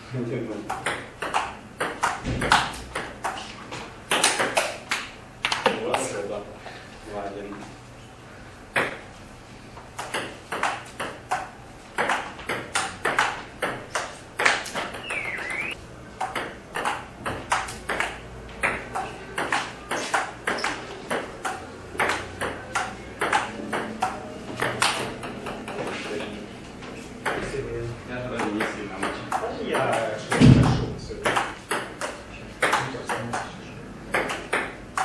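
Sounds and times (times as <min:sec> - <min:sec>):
table tennis ball clicking off paddles: 0:00.6 - 0:03.4, 0:04.1 - 0:06.0, 0:09.9 - 0:15.1, 0:16.2 - 0:26.2, 0:31.2 - 0:35.0
ball bouncing on table: 0:00.7 - 0:03.4, 0:08.8 - 0:09.0, 0:10.0 - 0:15.1, 0:16.2 - 0:26.2, 0:28.4 - 0:33.5, 0:34.1 - 0:35.0.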